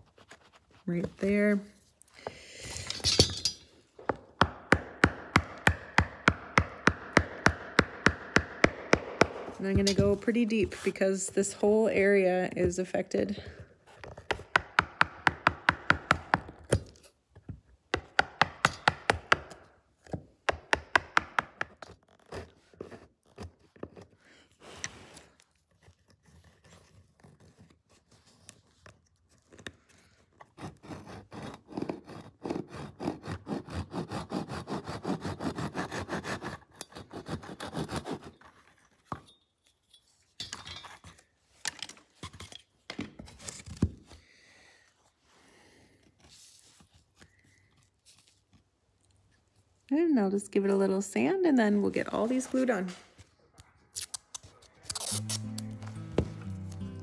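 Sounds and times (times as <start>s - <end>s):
chisel scraping wood: 30.5s - 38.9s.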